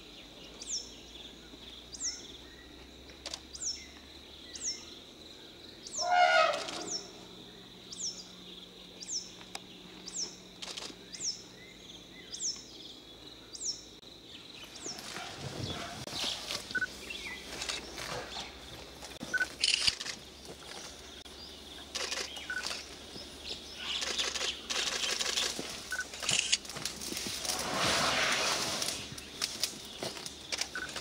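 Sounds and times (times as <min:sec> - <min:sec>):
elephants rustling through bushes: 0:14.9 - 0:21.2, 0:23.9 - 0:31.0.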